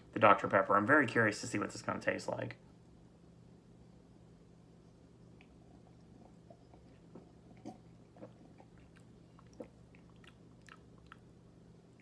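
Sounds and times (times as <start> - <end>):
low steady hum: 0.0 - 12.0
person swallowing and lip smacking: 5.4 - 11.3.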